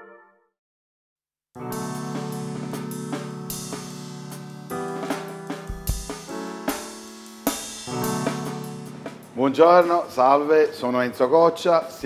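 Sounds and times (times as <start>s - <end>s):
held chords: 1.6s - 10.6s
drum hits: 1.7s - 10.2s.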